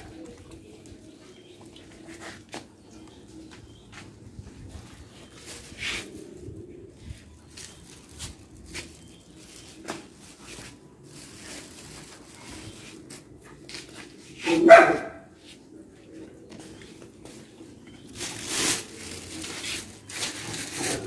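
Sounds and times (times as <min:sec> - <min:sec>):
dog barking loudly: 0:14.4 - 0:15.3.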